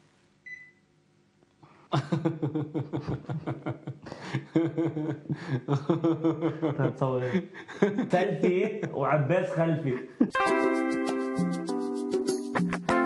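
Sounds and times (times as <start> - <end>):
men laughing: 1.9 - 9.2, 9.8 - 10.4.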